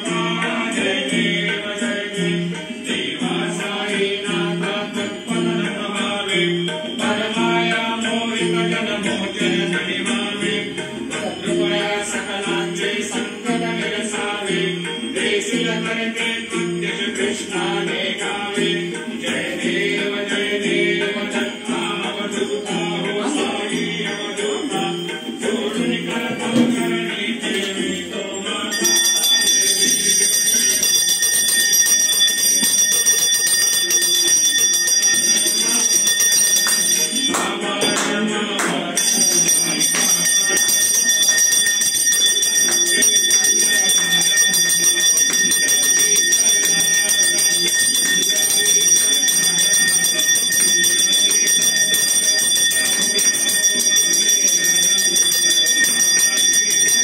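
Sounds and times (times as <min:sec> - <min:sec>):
devotional music: 0:00.0 - 0:30.3, 0:34.4 - 0:48.1
prayer bell ringing rapidly: 0:00.0 - 0:57.0.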